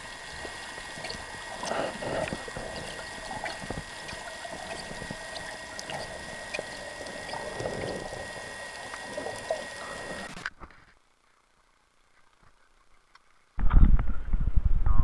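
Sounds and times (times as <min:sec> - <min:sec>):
underwater bubbling rush: 0:00.0 - 0:10.4.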